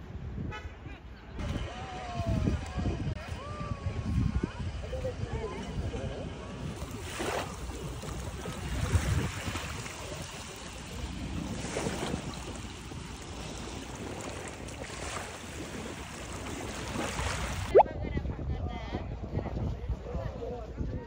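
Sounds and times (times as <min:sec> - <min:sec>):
wind rumbling on microphone: 0:00.0 - 0:21.0
waves lapping on sand: 0:06.2 - 0:17.8.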